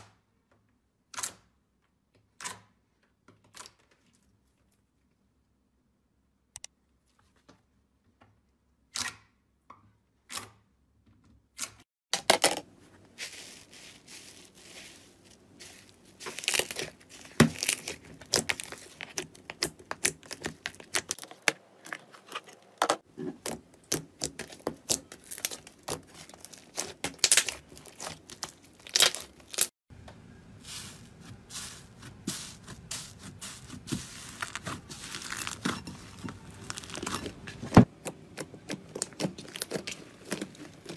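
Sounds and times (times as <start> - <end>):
slime crackling and popping: 15.7 - 21.6, 23.4 - 29.7, 33.6 - 40.9.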